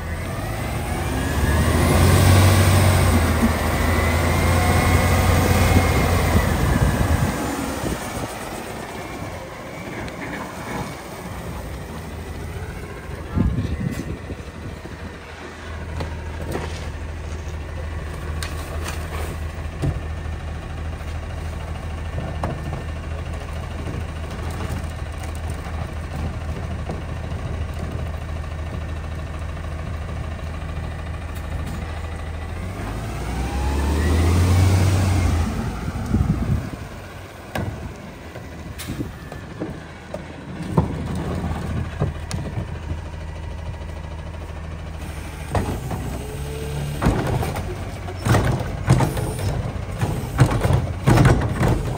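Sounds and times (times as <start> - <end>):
diesel truck engine idling and revving: 0.0 - 51.9
clanks and knocks: 37.5 - 43.0, 47.0 - 51.9.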